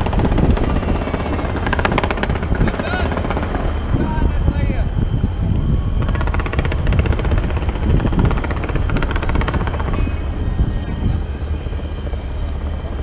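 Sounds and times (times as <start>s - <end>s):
fireworks popping and crackling: 0.0s - 4.4s, 5.8s - 10.3s
steady low rumble: 0.0s - 13.0s.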